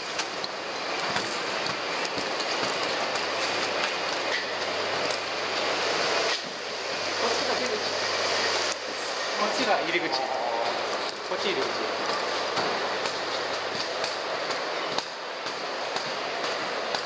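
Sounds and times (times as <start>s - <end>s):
escalator steps clattering: 0.0s - 6.6s, 10.6s - 17.0s.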